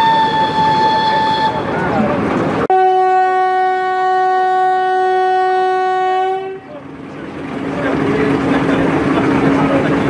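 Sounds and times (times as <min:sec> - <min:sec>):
steam whistle: 0:00.0 - 0:01.6.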